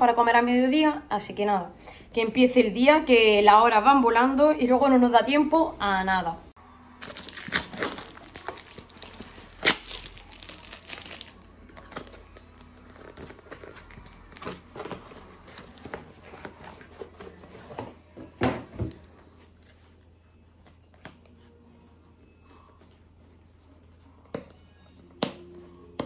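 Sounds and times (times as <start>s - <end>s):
packaging crinkling and rustling: 7.0s - 17.8s.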